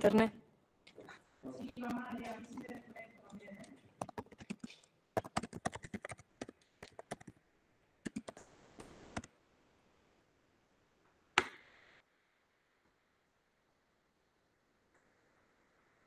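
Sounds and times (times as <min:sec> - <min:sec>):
computer keyboard typing: 0:01.6 - 0:07.3, 0:08.0 - 0:08.4.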